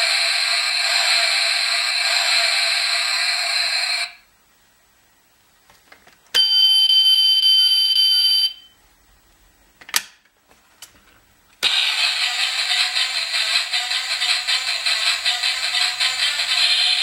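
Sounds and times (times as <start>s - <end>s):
harsh noisy sound effect: 0.0s - 4.2s, 11.6s - 17.0s.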